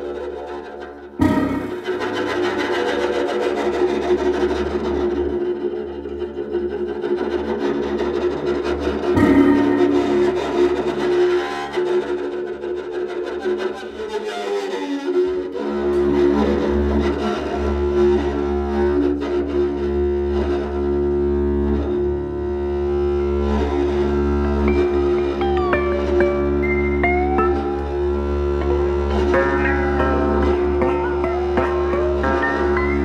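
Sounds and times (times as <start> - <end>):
bowed koto drone: 0.0 - 33.0
low hum: 1.2 - 2.5, 24.4 - 33.0
electric guitar drone: 1.2 - 2.9, 9.1 - 11.7, 20.0 - 33.0.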